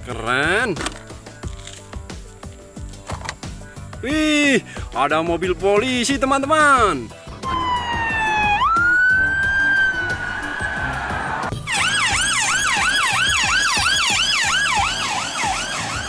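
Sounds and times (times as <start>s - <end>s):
fast sweeping police siren: 7.4s - 16.0s
police siren wailing: 7.4s - 16.0s.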